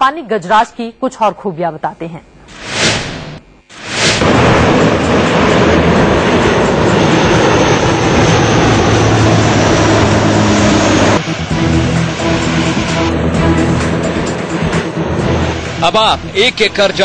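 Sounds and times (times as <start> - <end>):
short whoosh: 2.5 - 5.0
turboprop engines at high power: 2.6 - 17.0.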